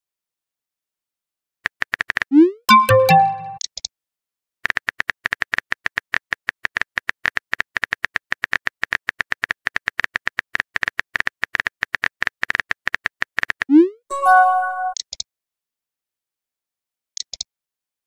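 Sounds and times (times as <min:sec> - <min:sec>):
keyboard typing clicks: 0:01.8 - 0:03.8.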